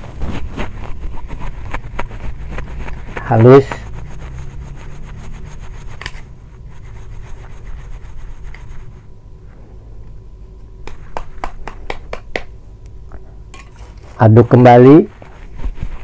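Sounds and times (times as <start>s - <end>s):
dough rasping on metal grater: 0.0s - 9.0s.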